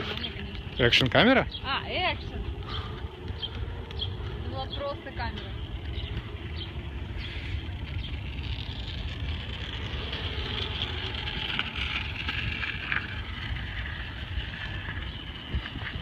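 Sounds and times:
wheels rolling on asphalt: 0.0s - 16.0s
wind buffeting microphone: 0.0s - 16.0s.

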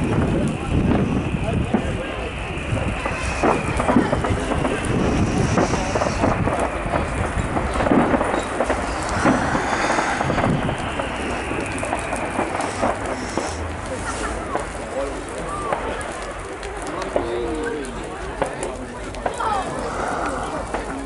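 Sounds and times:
low rumble: 0.0s - 15.8s
fireworks bursting and crackling: 0.0s - 21.0s.

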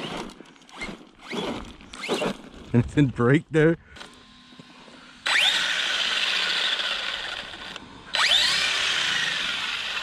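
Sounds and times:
electric motor whining: 3.8s - 10.0s.

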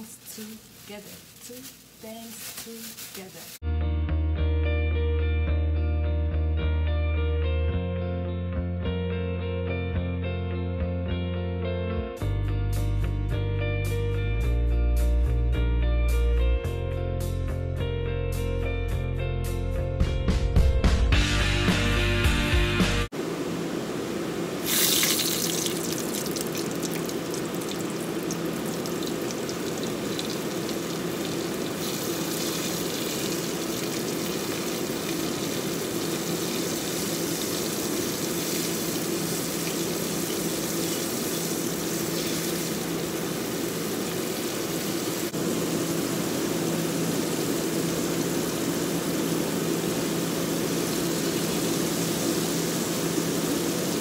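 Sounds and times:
chicken deep-frying in oil: 23.8s - 54.0s.

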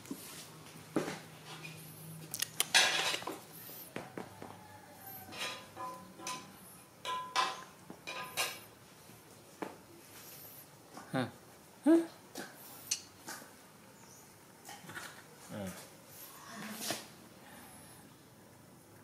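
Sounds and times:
dishes and utensils clattering: 2.6s - 3.4s, 5.2s - 8.7s.

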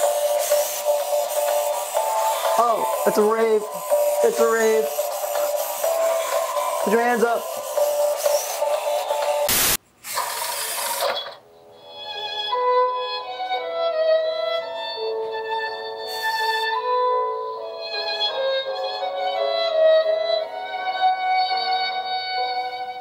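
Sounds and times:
bowed violin melody: 0.0s - 9.4s, 11.8s - 23.0s
short noise burst: 9.5s - 11.3s.

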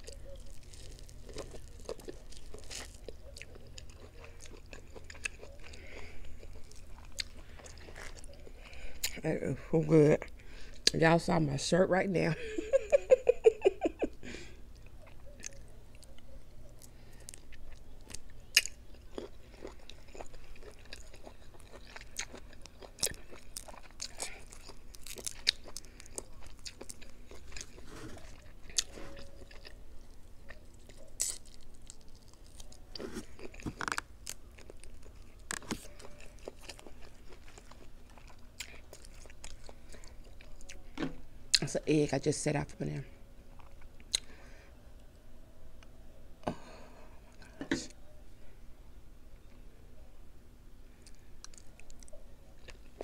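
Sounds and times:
person chewing food: 0.0s - 9.2s, 14.1s - 41.7s, 43.5s - 44.4s, 51.0s - 53.0s.

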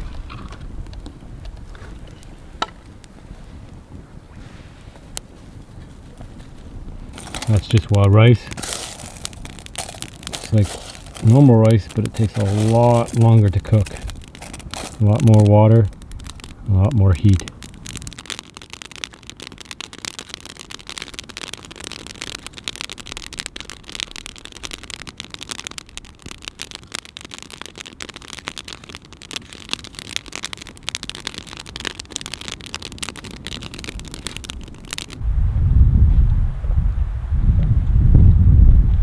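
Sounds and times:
cooking fire crackling: 0.0s - 35.3s.

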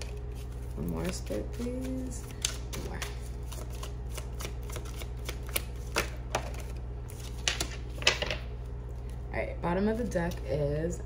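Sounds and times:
cards shuffled by hand: 0.0s - 8.4s
low steady hum: 0.0s - 11.0s.

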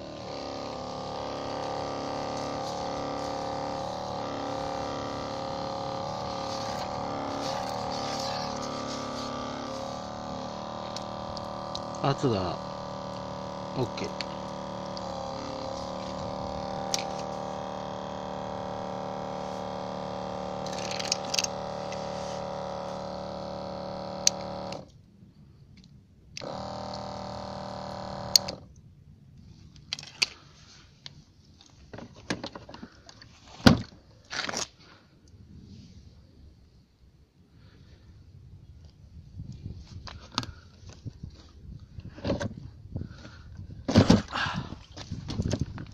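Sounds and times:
water jetting: 0.0s - 24.8s
electric pump humming: 0.0s - 24.9s, 26.4s - 28.7s.

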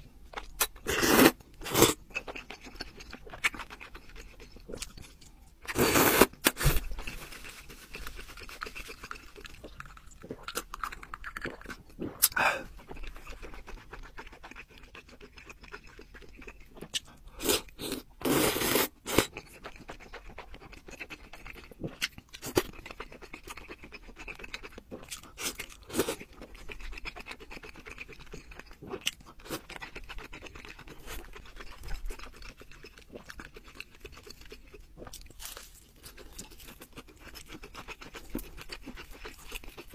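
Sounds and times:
chewing and wet mouth noises: 0.0s - 39.9s
noodles slurped loudly: 17.4s - 19.3s.

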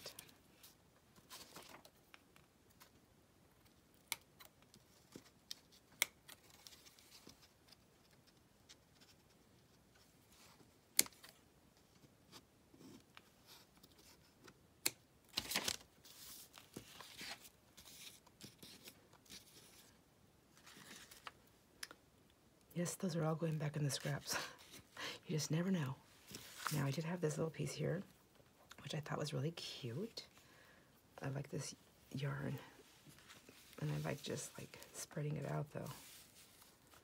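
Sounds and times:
paper shuffling: 15.3s - 21.4s, 26.2s - 27.0s, 32.9s - 37.0s.

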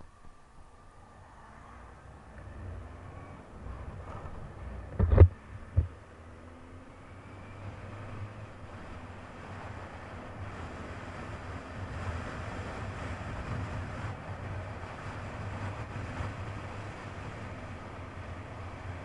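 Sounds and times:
wind on microphone: 3.6s - 5.9s, 8.2s - 19.0s.

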